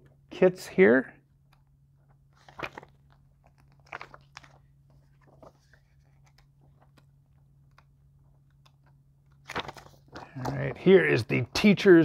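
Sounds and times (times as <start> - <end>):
low steady hum: 0.0 - 12.0
booklet pages rustling: 1.5 - 10.9.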